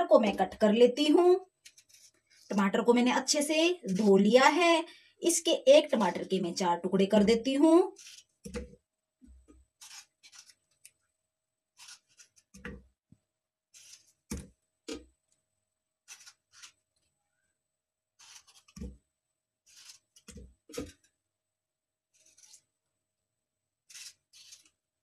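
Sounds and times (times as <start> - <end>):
knife slicing tomatoes: 9.3 - 10.7, 11.8 - 12.7, 16.0 - 16.8, 18.2 - 19.0, 19.6 - 21.0, 23.9 - 24.8.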